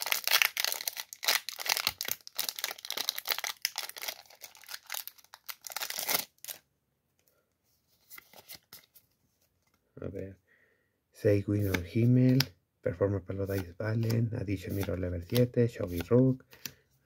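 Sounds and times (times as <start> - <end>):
foil wrapper tearing and crinkling: 0.0 - 6.6.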